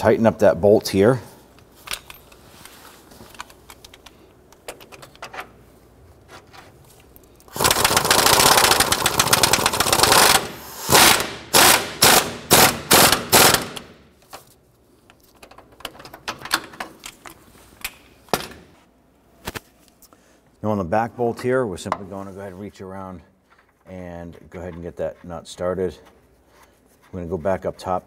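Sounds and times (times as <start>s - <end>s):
impact wrench hammering: 7.6s - 14.0s.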